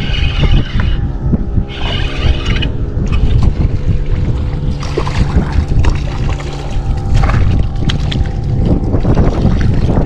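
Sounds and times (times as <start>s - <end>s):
steady low hum: 0.0s - 10.0s
wind buffeting microphone: 0.0s - 10.0s
splashes against hull: 3.2s - 10.0s.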